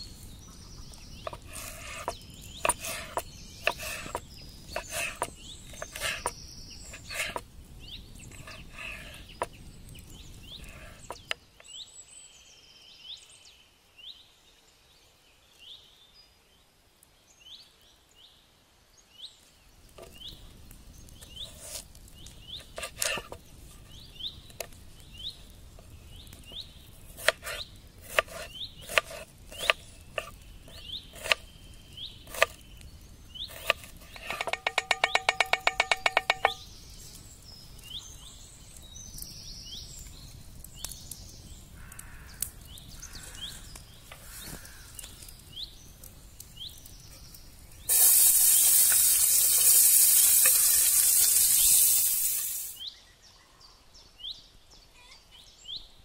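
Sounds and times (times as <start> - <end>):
onion sizzling in frying pan: 0.0 - 7.4, 47.3 - 52.8
birds chirping: 0.0 - 14.1, 19.0 - 55.9
knife chopping on wooden board: 1.3 - 7.4, 27.2 - 30.4, 31.2 - 31.4, 32.3 - 32.6, 33.5 - 36.6.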